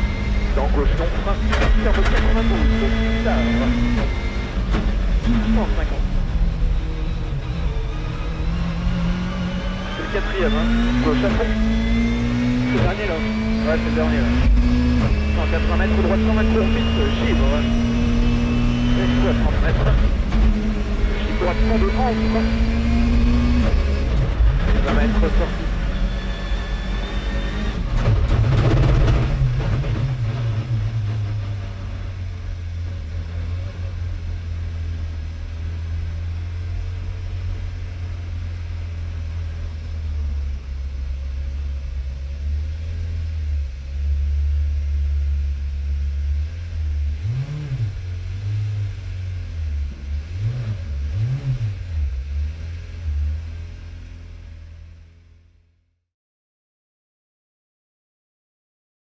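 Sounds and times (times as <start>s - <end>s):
engine blips: 0.0s - 32.3s
rally car engine from cabin: 0.0s - 56.0s.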